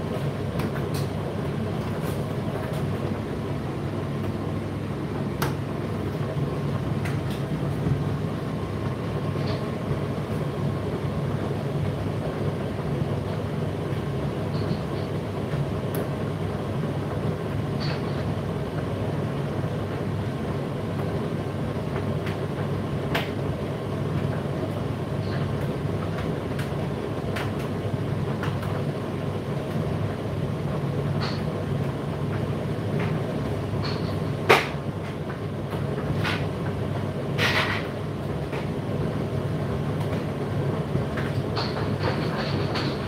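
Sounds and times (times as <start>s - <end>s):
tumble dryer humming: 0.0s - 43.0s
clicks and knocks of tumbling load: 40.9s - 43.0s.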